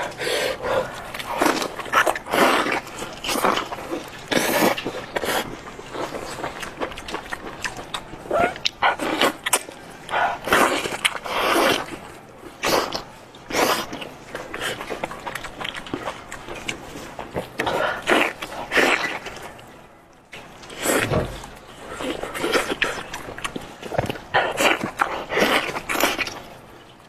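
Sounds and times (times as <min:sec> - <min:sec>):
smacking and chewing: 0:00.0 - 0:27.0.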